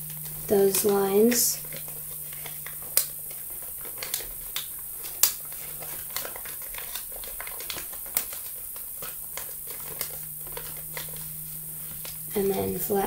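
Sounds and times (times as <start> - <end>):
paper being folded: 0.0 - 12.8.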